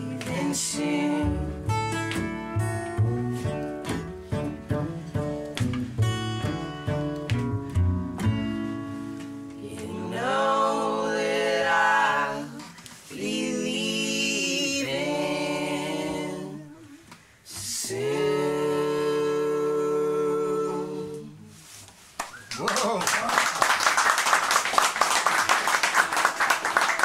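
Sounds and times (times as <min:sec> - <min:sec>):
men singing unaccompanied: 0:00.0 - 0:01.5, 0:09.6 - 0:16.9, 0:17.5 - 0:21.4
acoustic guitars strumming: 0:00.0 - 0:10.3.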